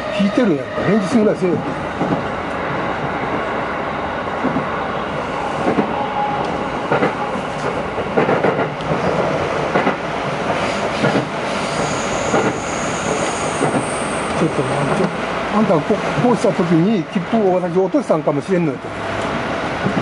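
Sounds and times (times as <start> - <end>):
train wheels rumbling on rail: 0.0 - 20.0
clacks over rail joints: 6.9 - 11.3
high wheel squeal: 11.6 - 14.9.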